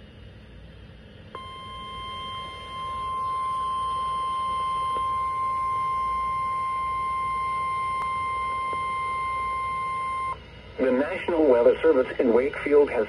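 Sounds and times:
steady alarm tone from speaker: 1.4 - 13.0.

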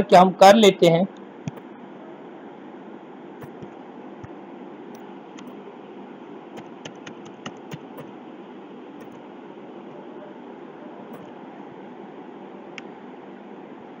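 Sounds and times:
keyboard and mouse clicks: 3.4 - 3.8, 5.4 - 5.6, 6.6 - 8.1, 9.0 - 9.2.

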